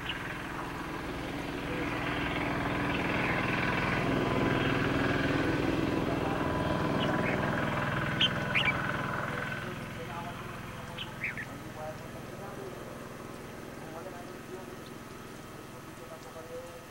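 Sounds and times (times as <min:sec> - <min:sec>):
bird chirps: 0:00.0 - 0:00.7, 0:06.2 - 0:12.2
vehicle engine passing: 0:00.0 - 0:16.9.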